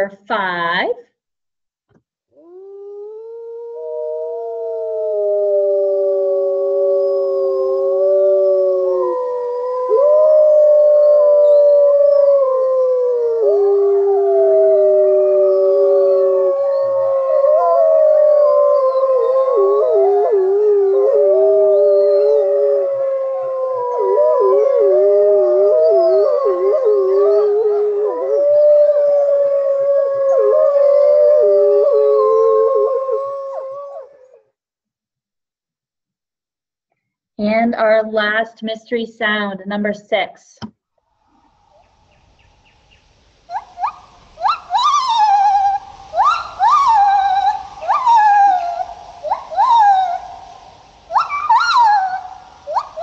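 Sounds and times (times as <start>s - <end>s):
dogs howling together: 2.4s - 34.4s, 43.5s - 53.0s.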